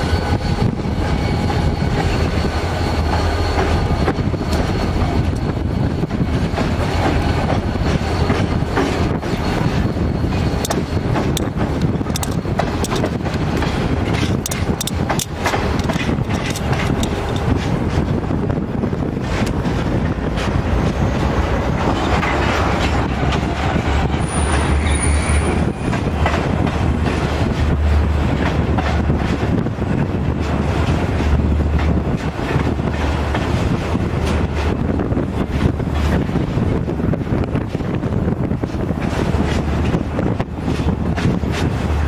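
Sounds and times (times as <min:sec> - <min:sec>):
high squeal: 0:00.0 - 0:11.2, 0:23.8 - 0:26.1
freight train rumbling past: 0:00.0 - 0:42.0
wheels clicking over rail joints: 0:06.4 - 0:42.0.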